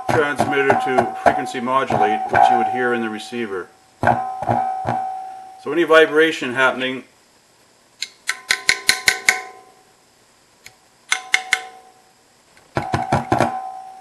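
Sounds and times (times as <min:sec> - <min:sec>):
ringing tones from radio: 0:00.0 - 0:03.4.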